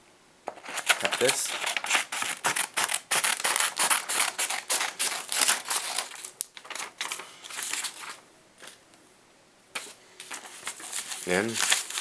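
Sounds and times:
scissors snipping paper: 0.6 - 8.0.

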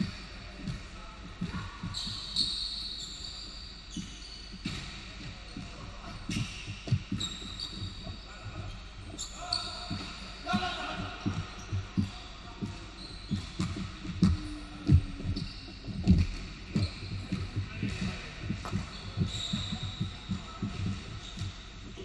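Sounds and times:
sneaker squeaks: 0.0 - 22.0
basketball bouncing on hardwood floor: 4.6 - 8.2, 9.0 - 22.0.

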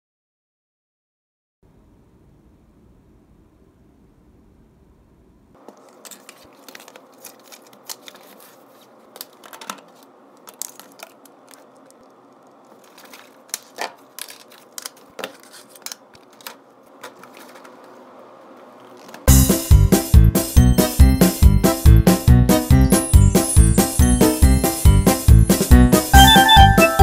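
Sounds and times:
book being moved: 5.6 - 10.8, 12.7 - 18.0.

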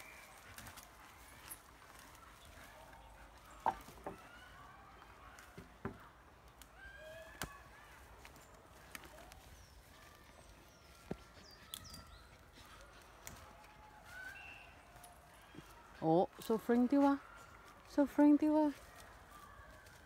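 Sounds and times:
branch cracking and snapping: 6.4 - 9.5.

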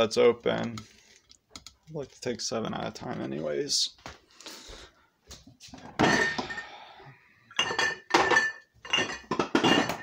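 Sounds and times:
dishes and utensils clinking: 5.8 - 6.8, 7.5 - 10.0.

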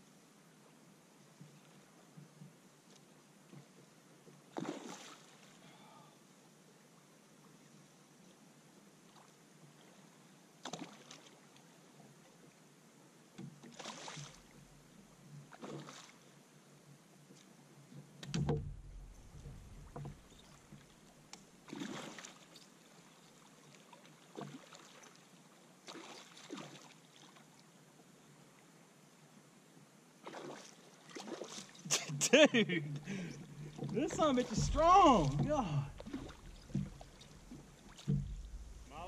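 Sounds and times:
low thump: 18.3 - 20.3, 33.7 - 39.0.

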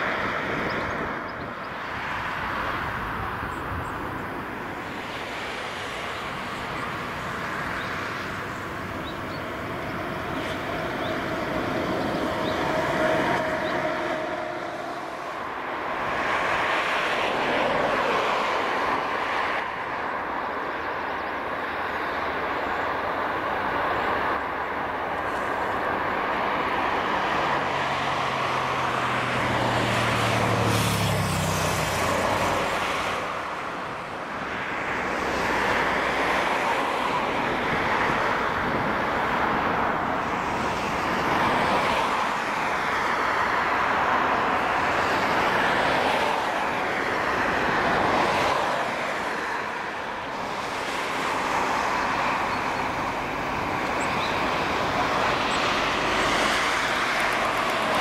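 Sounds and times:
ground vehicle engine hum: 0.0 - 17.0, 49.6 - 58.0
distant jet engine rush: 0.0 - 58.0.

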